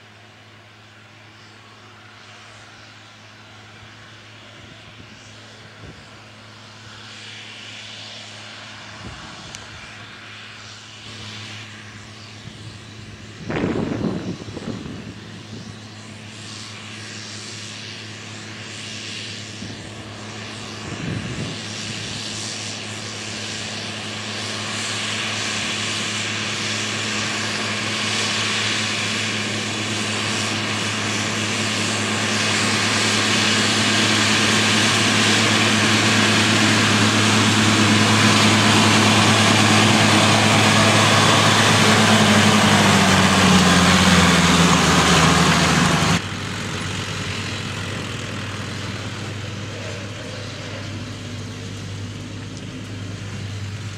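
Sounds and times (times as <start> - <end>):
tractor diesel engine under load: 19.6 - 53.9.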